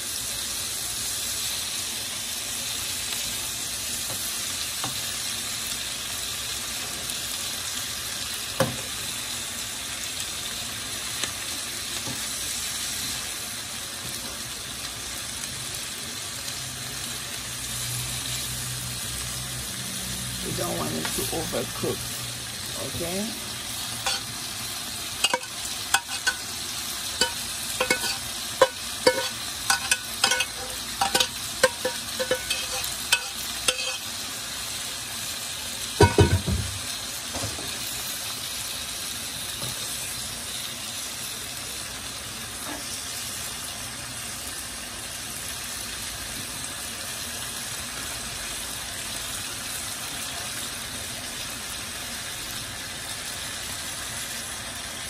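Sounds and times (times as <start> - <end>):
vegetables sizzling in a frying pan: 0.0 - 55.0
metal spoon scraping a pan: 23.9 - 24.4, 25.2 - 34.2.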